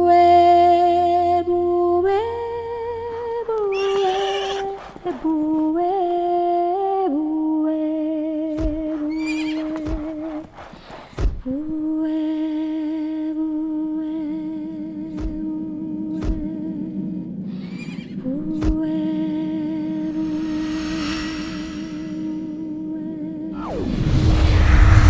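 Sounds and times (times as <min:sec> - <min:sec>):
horse whinnying: 0:03.4 - 0:05.5, 0:08.9 - 0:10.7, 0:17.5 - 0:18.2
low thumps: 0:18.1 - 0:22.5.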